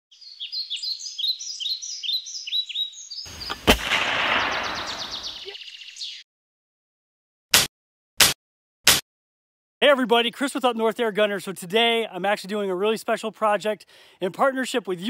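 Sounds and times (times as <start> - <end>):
birds chirping: 0.1 - 6.2
sharp shot-like crack: 3.3 - 5.4
sudden rush of noise: 3.3 - 5.4.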